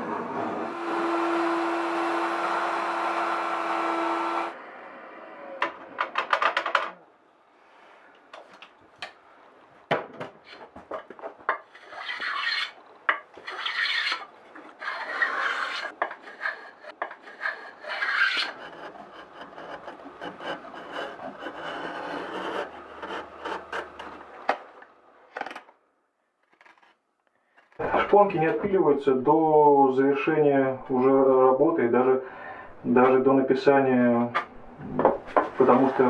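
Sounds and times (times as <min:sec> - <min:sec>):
blade scraping wood: 0:10.4 - 0:24.3.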